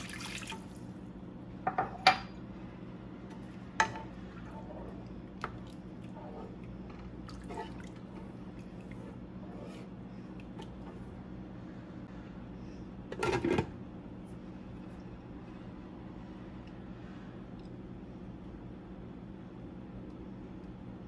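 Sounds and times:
liquid sloshing and squishing: 0:04.3 - 0:09.2.

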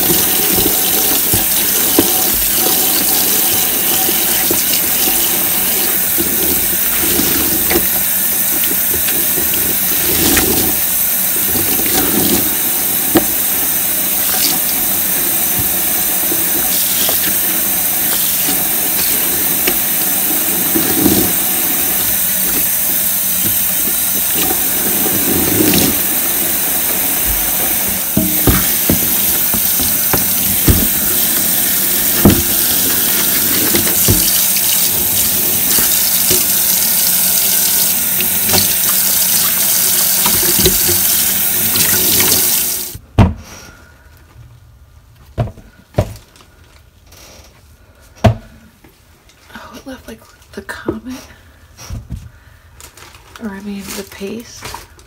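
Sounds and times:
tap water running into sink: 0:00.0 - 0:43.0.

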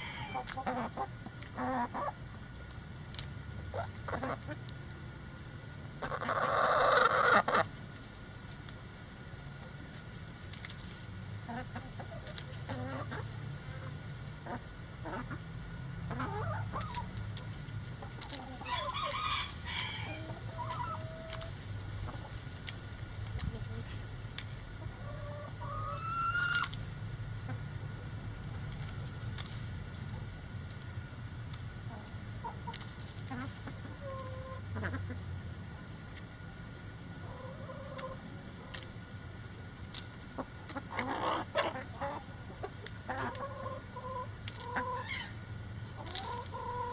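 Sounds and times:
rooster crowing: 0:00.0 - 0:00.4, 0:18.6 - 0:20.4
chickens clucking: 0:00.0 - 0:08.8, 0:09.4 - 0:46.9
hens pecking clicks: 0:16.1 - 0:33.9, 0:37.4 - 0:45.0, 0:45.9 - 0:46.9
hen squawk: 0:44.7 - 0:45.4.

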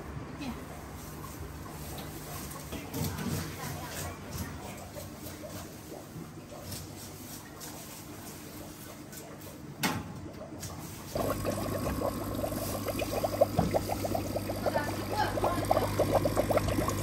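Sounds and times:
water splashing and bubbling: 0:11.0 - 0:17.0.

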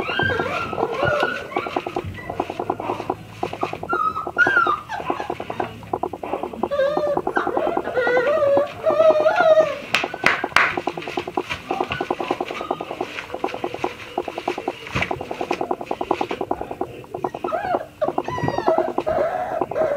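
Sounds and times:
sharp knocks: 0:05.1 - 0:07.9.

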